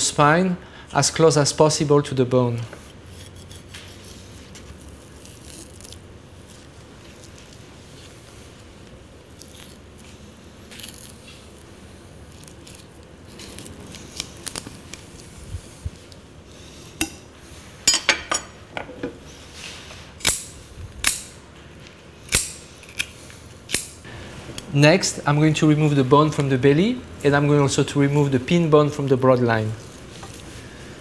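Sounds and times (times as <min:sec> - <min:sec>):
knife scraping fish bones: 0:02.9 - 0:07.3.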